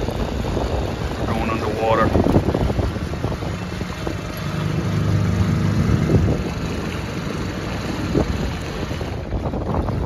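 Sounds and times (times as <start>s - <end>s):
outboard motor running: 0.0s - 10.0s.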